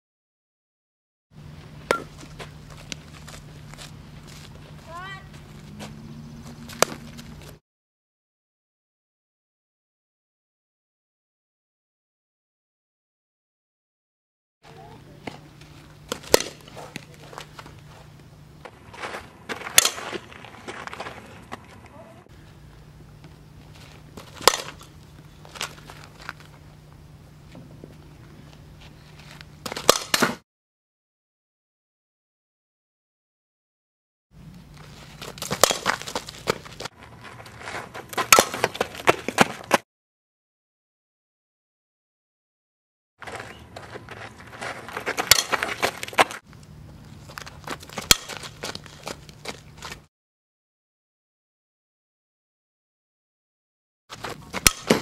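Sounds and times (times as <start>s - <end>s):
faint steady hum: 1.4s - 7.6s, 14.6s - 30.4s, 43.3s - 50.0s
feet scuffing on dirt: 1.6s - 7.6s, 14.7s - 22.0s, 34.6s - 39.8s, 43.2s - 46.4s, 47.0s - 50.1s
bat cracking ball: 1.8s - 3.1s, 6.6s - 7.5s, 15.2s - 17.8s, 19.4s - 21.0s, 24.0s - 26.4s, 29.6s - 30.4s, 35.2s - 36.9s, 38.2s - 39.8s, 45.0s - 46.4s, 47.4s - 49.2s, 54.1s - 55.0s.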